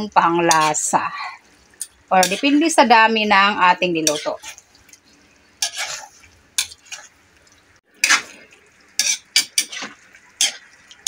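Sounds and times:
metal spatula scraping a wok: 0.5 - 0.9, 1.8 - 2.7, 4.0 - 4.6, 5.6 - 7.1, 8.0 - 10.7.

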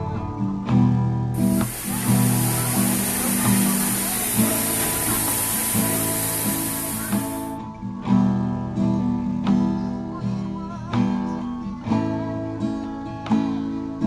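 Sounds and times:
acoustic guitar chords strummed: 1.4 - 7.6.

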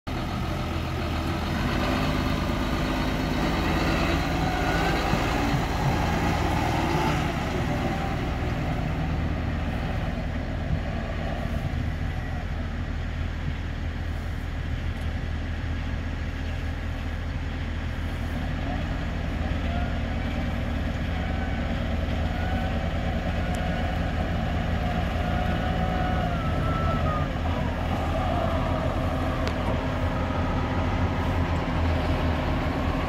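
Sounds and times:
tractor diesel engine running: 0.0 - 33.0.

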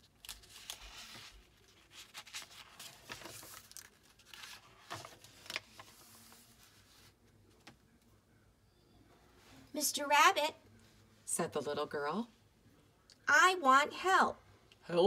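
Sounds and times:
book pages rustling: 0.0 - 7.8.

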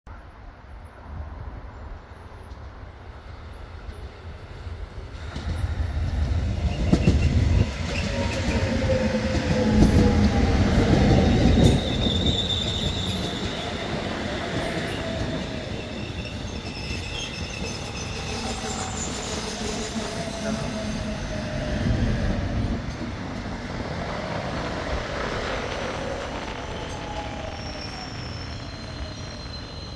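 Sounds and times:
train wheels rumbling on rails: 3.3 - 29.9
high wheel squeal: 6.7 - 21.7, 26.0 - 29.9.

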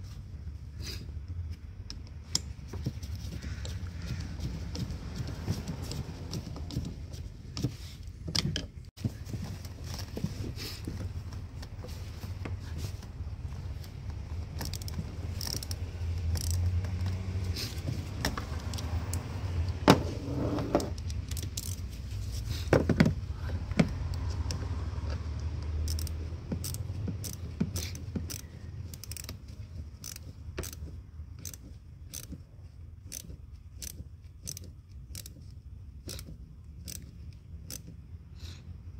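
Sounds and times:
metal tool clicks and clinks: 14.6 - 17.2.

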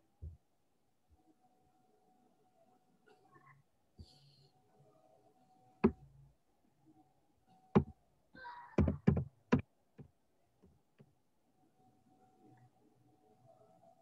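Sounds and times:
sharp knocks: 8.8 - 9.6.

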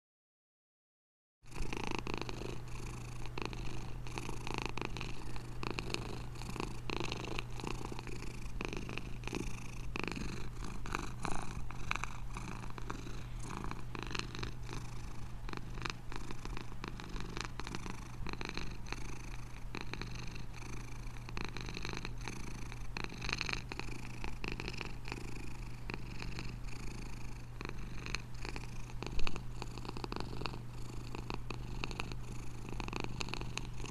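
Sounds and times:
cat purring: 1.5 - 33.9.

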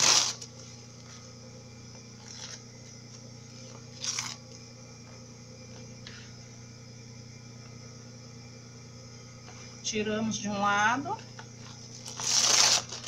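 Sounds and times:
tissue paper tearing: 0.0 - 0.5, 3.9 - 4.4, 12.0 - 13.0
steady low hum: 0.0 - 13.0.

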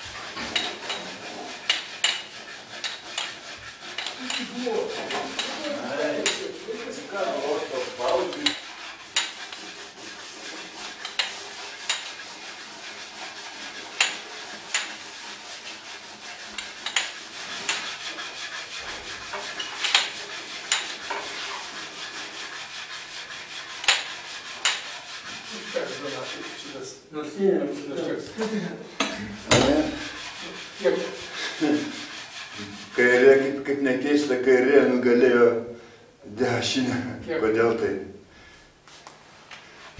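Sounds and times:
hand rasping on wood: 0.0 - 26.8, 29.5 - 33.6
sharp knocks: 29.4 - 30.1.

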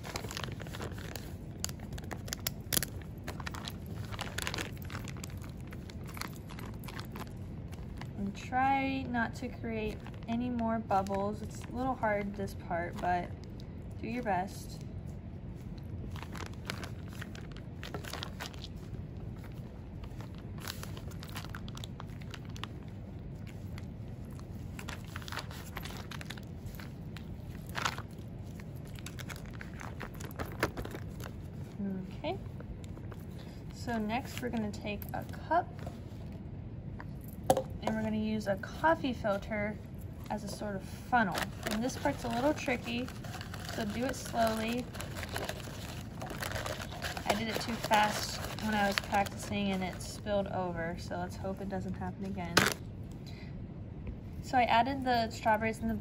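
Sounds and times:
plastic bag crinkling: 0.0 - 8.4, 9.5 - 11.8, 15.6 - 34.5, 41.3 - 50.2
steady low hum: 0.0 - 56.0.

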